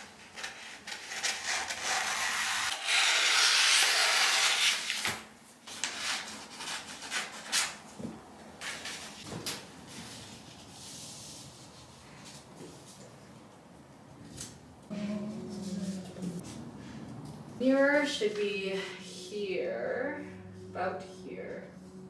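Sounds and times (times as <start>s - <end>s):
scissors cutting paper: 0.0s - 5.2s.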